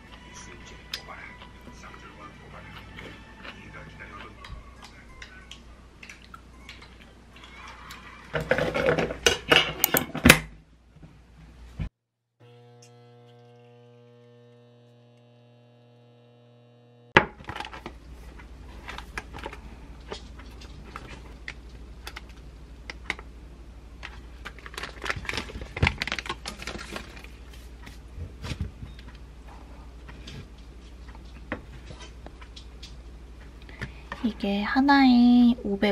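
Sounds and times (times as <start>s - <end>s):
electric appliance hum: 12.4s - 35.9s
paper and plastic rustling: 17.4s - 22.4s, 24.0s - 28.9s.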